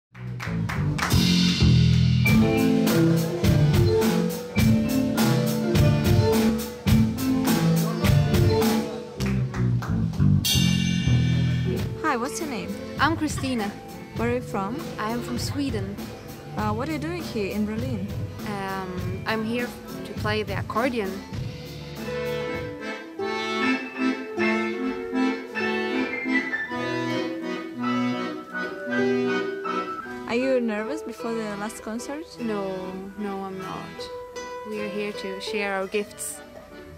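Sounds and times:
drum kit beat: 0.2s - 27.2s
live band music: 0.2s - 36.9s
accordion playing: 1.1s - 9.5s, 11.6s - 36.9s.

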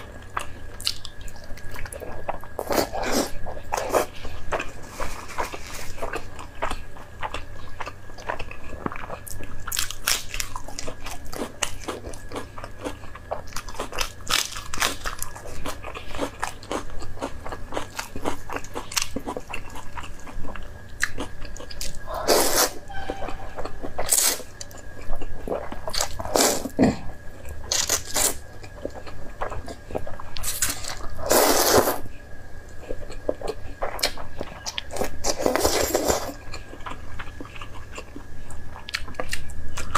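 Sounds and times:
slurping noodles: 31.2s - 32.0s.

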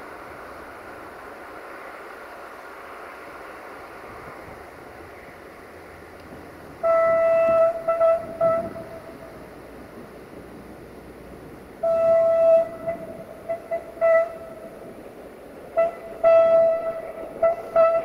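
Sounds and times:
train horn blasts and toots: 6.8s - 9.4s, 11.8s - 14.8s, 15.7s - 18.0s.

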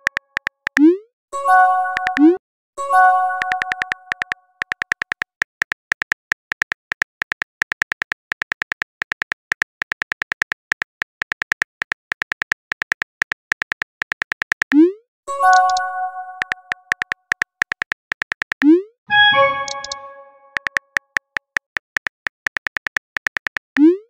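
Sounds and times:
synthetic keyboard tap clicks: 0.0s - 1.0s, 1.9s - 2.4s, 3.3s - 24.0s
short multi-tone chime: 19.1s - 20.6s.

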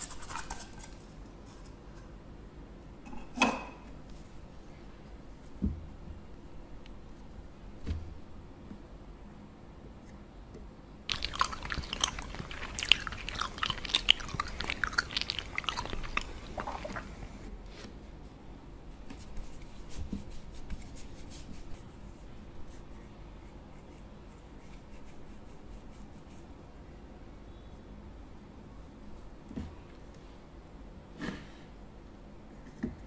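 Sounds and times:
crunchy crackling and clicking: 11.1s - 17.5s.

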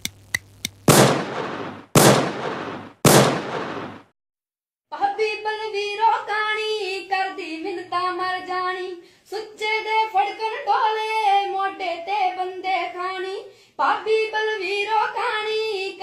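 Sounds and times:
loud gunshot-like bangs: 0.9s - 4.1s
girl singing: 4.9s - 16.0s.

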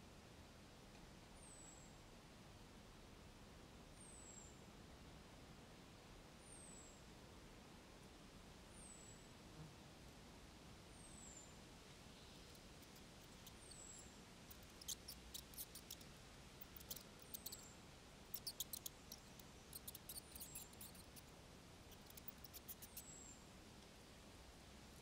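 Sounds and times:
high-pitched small-animal chirps: 12.8s - 16.0s, 16.6s - 17.7s, 18.3s - 21.3s, 21.9s - 23.2s
rapid high clicking and ticking: 14.5s - 16.0s, 18.4s - 21.2s.

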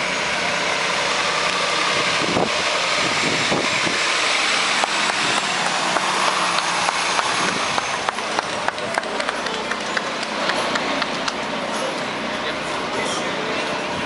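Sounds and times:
diesel truck engine passing: 0.0s - 14.0s.

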